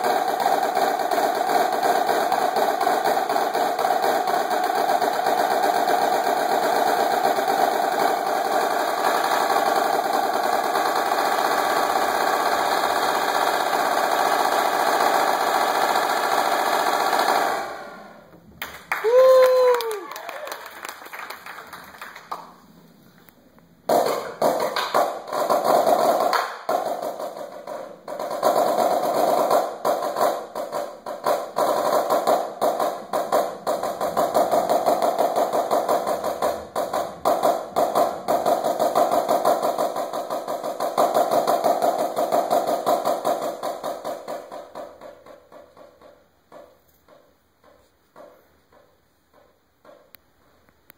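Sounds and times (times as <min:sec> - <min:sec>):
snare drum rolls: 0:00.0 - 0:22.8, 0:23.8 - 0:50.6.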